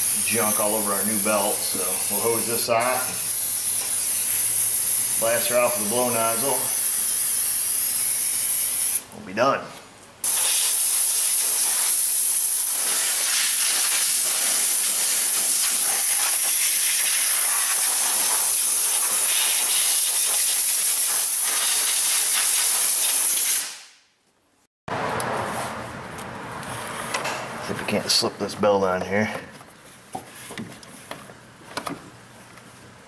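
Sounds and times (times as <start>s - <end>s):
compressed-air blow gun hissing: 10.2s - 23.9s.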